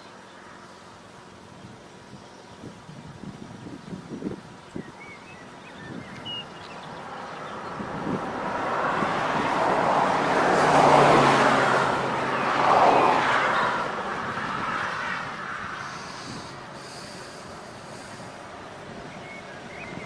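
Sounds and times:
vehicle passing by: 0:06.2 - 0:20.0.

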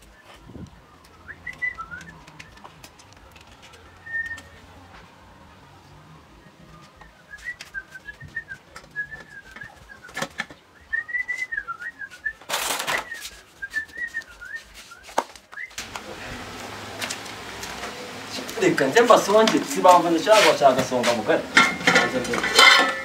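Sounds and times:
person whistling a tune: 0:00.0 - 0:02.6, 0:04.0 - 0:04.6, 0:06.8 - 0:15.8.

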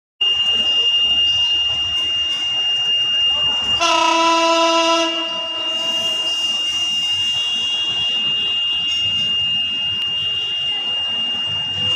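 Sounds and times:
steady high-pitched electronic tone: 0:00.2 - 0:11.9
locomotive horn blast: 0:03.8 - 0:08.7.

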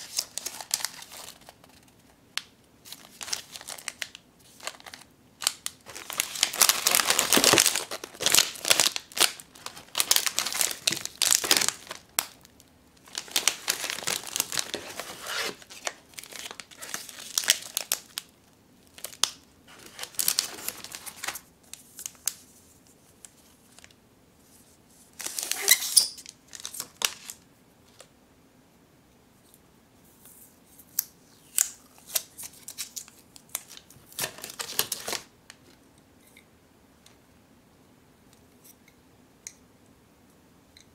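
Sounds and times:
plastic wrappers crinkling: 0:00.0 - 0:22.4, 0:25.2 - 0:28.1, 0:31.5 - 0:35.6.

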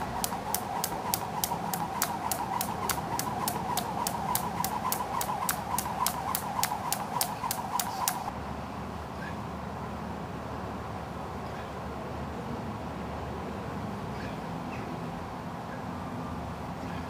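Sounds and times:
skipping rope slapping tarmac: 0:00.0 - 0:08.3
whirring hum: 0:00.0 - 0:08.3.

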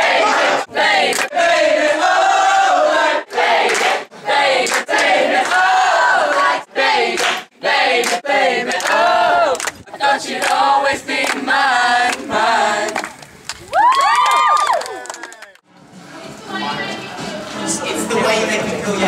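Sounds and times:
teenagers singing and shouting: 0:00.0 - 0:13.2.

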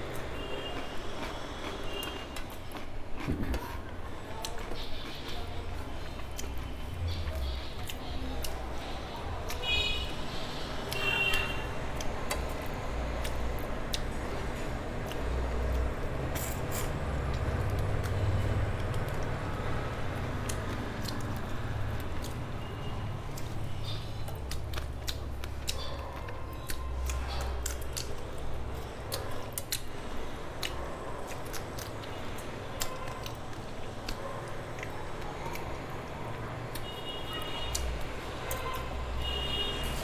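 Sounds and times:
person chewing and sucking: 0:00.0 - 0:08.6, 0:23.3 - 0:35.9.

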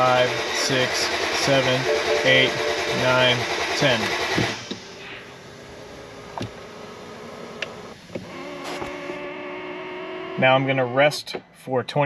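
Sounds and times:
engine cranking by starter: 0:00.0 - 0:09.2
steady hum: 0:00.0 - 0:09.2.

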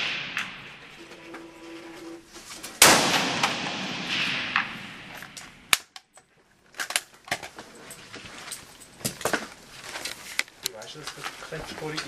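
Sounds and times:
rifle shot echoing in tunnel: 0:00.0 - 0:00.9, 0:02.8 - 0:05.7.

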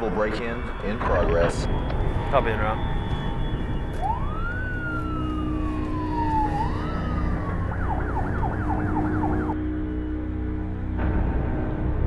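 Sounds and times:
police siren wailing: 0:00.0 - 0:11.0
fast siren yelp: 0:00.7 - 0:10.1.

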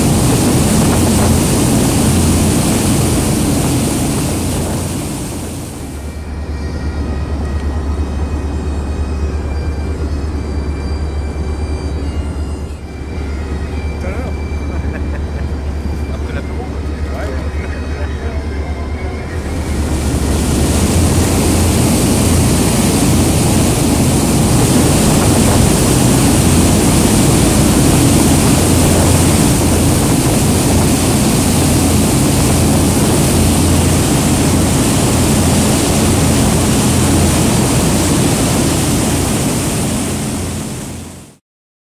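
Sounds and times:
wind rushing: 0:00.0 - 0:06.1, 0:19.4 - 0:41.3
churning water: 0:00.0 - 0:06.3, 0:19.2 - 0:41.4
boat engine drone: 0:00.0 - 0:41.4.

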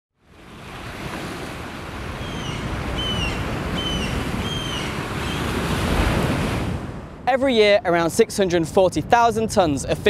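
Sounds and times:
wind: 0:00.1 - 0:10.0
waves breaking: 0:00.2 - 0:08.8
bird calling: 0:02.2 - 0:05.5.

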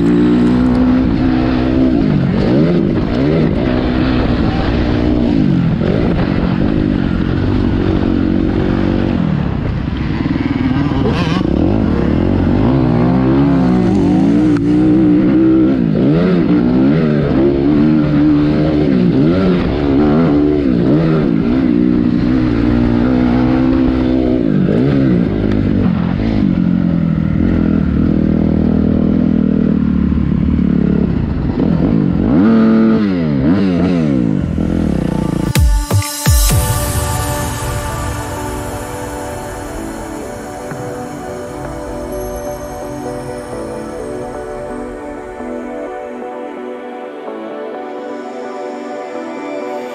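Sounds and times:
dirt bike engine revving: 0:00.0 - 0:35.6.

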